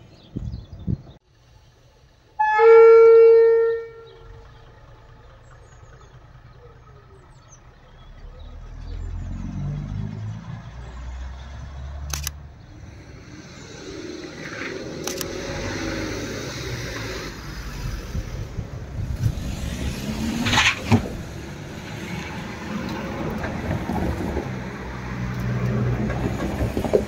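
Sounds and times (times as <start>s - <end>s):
diesel engine rumbling: 0.0s - 27.0s
railcar horn blast: 2.4s - 4.4s
sharp clicks: 12.0s - 12.4s, 14.9s - 15.5s.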